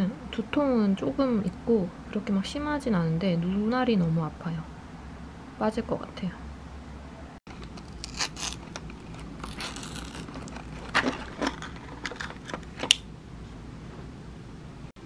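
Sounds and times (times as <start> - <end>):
foil crackling: 7.5 - 12.8
plastic crinkling: 7.5 - 13.0.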